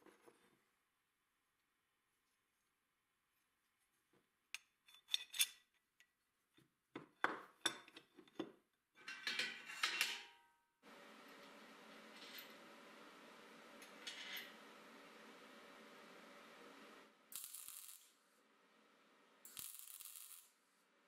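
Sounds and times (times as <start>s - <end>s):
steady hiss: 10.8s - 21.0s
small steel parts clinking: 13.8s - 14.7s, 19.5s - 20.5s.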